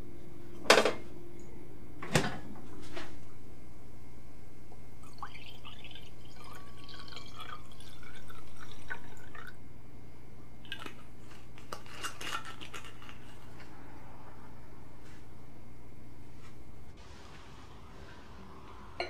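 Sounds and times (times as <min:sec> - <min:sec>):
steady low hum: 0:00.0 - 0:19.0
wine pouring into glass: 0:05.0 - 0:09.6.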